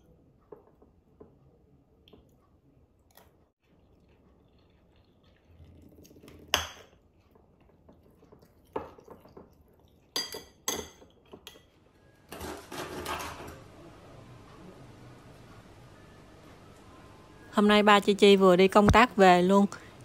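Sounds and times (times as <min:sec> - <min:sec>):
spoon clinking ceramic bowl: 0:10.2 - 0:11.7.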